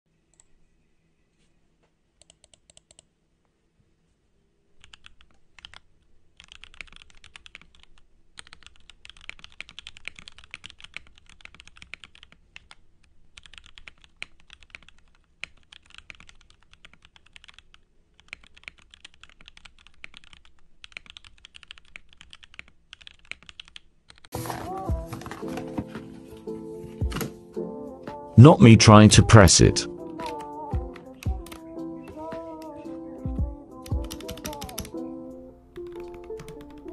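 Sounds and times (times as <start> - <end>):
mechanical keyboard typing: 4.8 - 5.8, 6.4 - 12.8, 13.4 - 25.6, 30.1 - 32.7, 33.8 - 35.0, 35.8 - 36.9.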